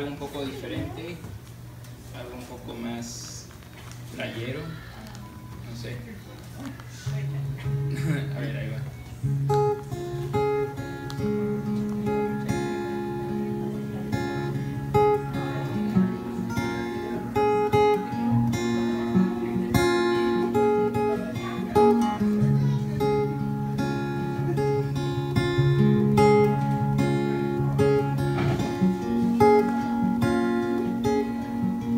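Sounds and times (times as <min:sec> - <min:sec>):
acoustic guitar strummed and picked: 0:07.0 - 0:31.9.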